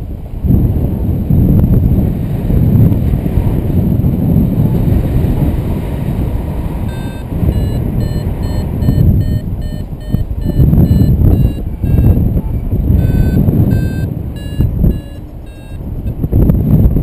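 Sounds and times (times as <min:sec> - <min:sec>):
wind rushing over microphone: 0:00.0 - 0:17.0
variometer beeping short tones: 0:06.9 - 0:12.3, 0:13.0 - 0:16.2.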